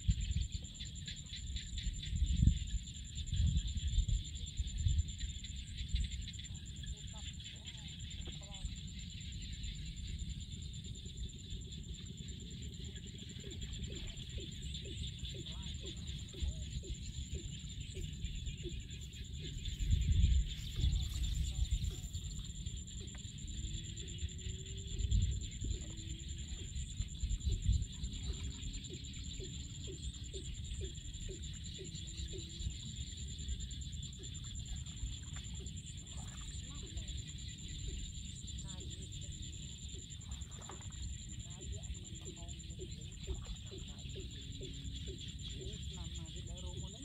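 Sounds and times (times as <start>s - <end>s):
wind on microphone: 0.0s - 0.8s, 1.5s - 6.4s, 13.1s - 29.6s
insects chirring: 0.0s - 47.0s
wind rumble on microphone: 0.0s - 47.0s.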